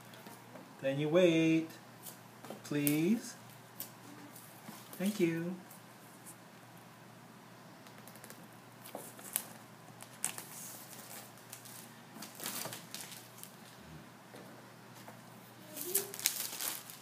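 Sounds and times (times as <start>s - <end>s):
plastic wrap crinkling: 7.9s - 13.7s, 15.6s - 17.0s.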